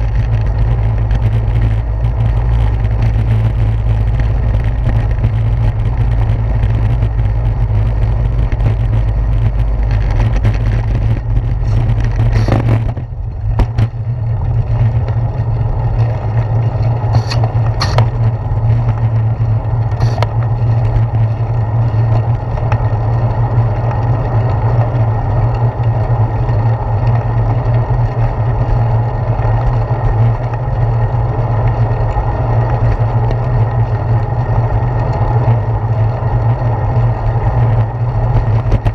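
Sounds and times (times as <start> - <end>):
bicycle road rumble: 0.0 - 38.9
wind noise: 0.0 - 38.9
sharp clicks: 17.2 - 18.2.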